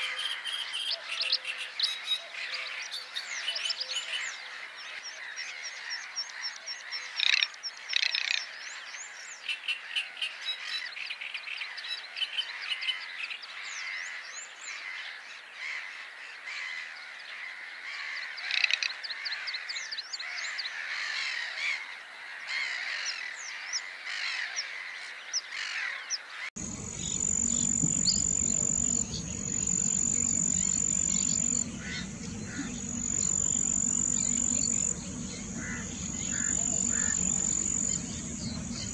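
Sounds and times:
wetland birds chirping: 0.0 - 21.0, 21.8 - 38.9
high insect-like trill: 26.6 - 38.9
low hum: 26.6 - 38.9.

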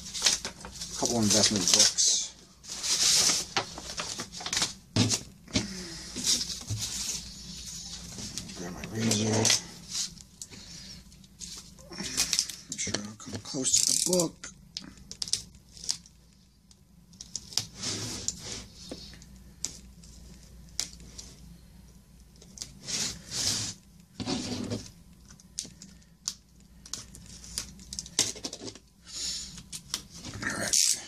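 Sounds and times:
paper and cardboard rustling: 0.0 - 14.3.

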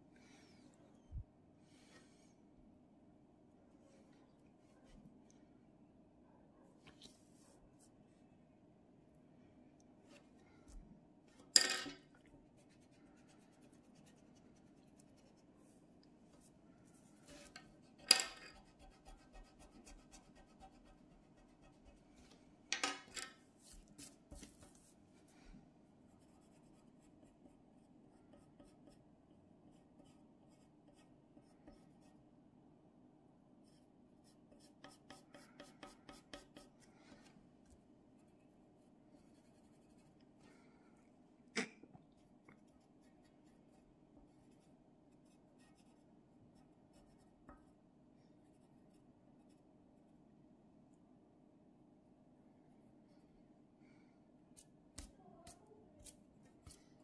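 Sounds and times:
faint steady hum: 0.0 - 57.0
pencil scratching on paper: 12.6 - 15.5, 17.2 - 22.1, 26.2 - 29.0, 29.7 - 32.2, 33.6 - 36.9, 39.2 - 40.2, 44.4 - 46.0, 46.6 - 47.3.

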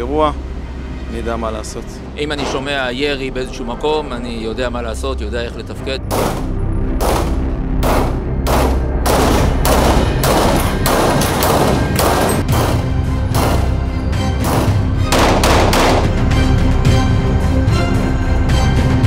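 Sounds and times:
background music with bass: 0.0 - 19.0
pistol shots: 6.1 - 12.8, 13.4 - 13.8, 14.4 - 16.2.

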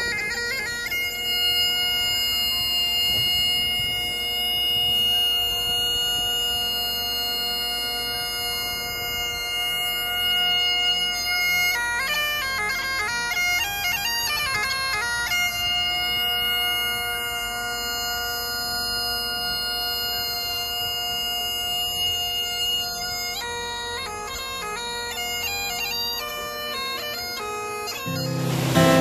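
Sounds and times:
bagpipes playing: 0.0 - 29.0.

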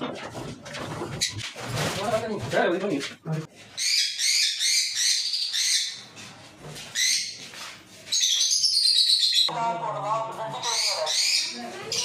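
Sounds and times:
lovebirds chirping: 8.1 - 9.5, 10.5 - 12.0.

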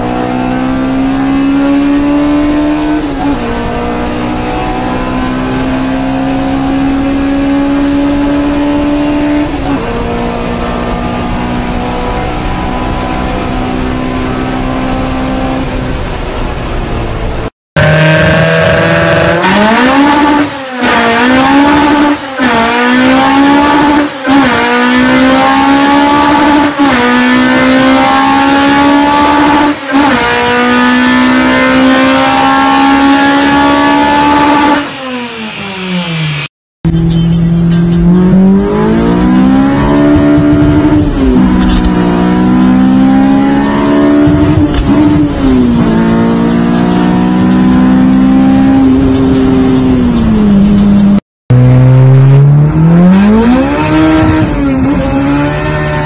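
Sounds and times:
four-cylinder engine revving: 17.3 - 56.0.

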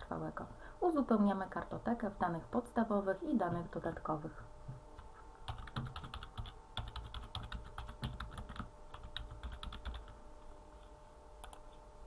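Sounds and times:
typing on computer keyboard: 5.5 - 10.2.

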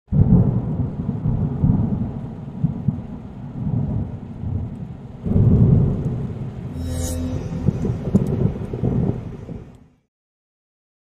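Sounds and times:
rolling rumble of thunder: 0.1 - 6.7.

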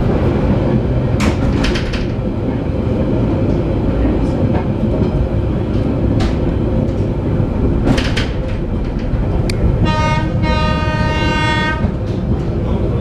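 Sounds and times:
train rumbling on rails: 0.0 - 13.0
train horn blasts: 9.8 - 12.0.

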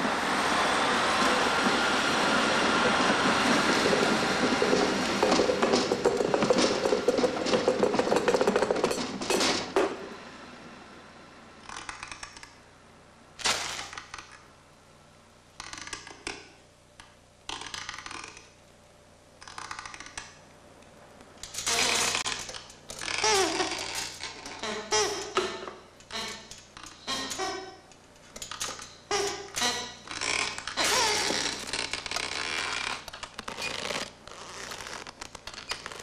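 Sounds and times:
tram rumbling past: 0.0 - 11.4
creaking: 1.1 - 10.0, 19.4 - 20.4, 21.4 - 36.0.

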